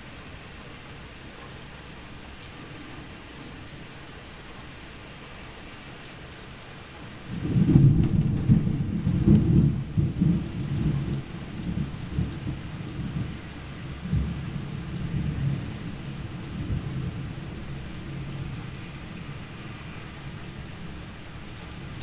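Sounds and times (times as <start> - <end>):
steady rain: 0.0 - 22.0
thunder rumbling: 7.3 - 22.0.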